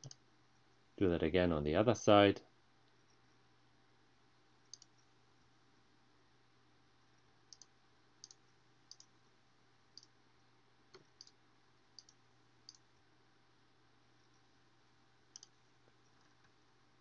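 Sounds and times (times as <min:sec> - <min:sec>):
computer mouse clicking: 0:00.0 - 0:00.2, 0:04.7 - 0:05.0, 0:07.5 - 0:09.1, 0:10.9 - 0:11.4, 0:12.0 - 0:12.8, 0:15.3 - 0:16.6
faint steady hum: 0:00.0 - 0:17.0.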